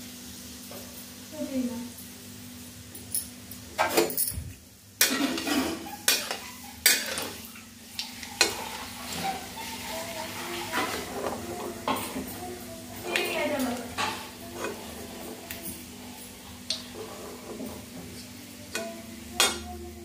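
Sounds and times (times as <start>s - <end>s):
hot oil sizzling: 0.0s - 20.0s
metal spoon scraping pan: 5.0s - 12.2s, 13.7s - 15.4s.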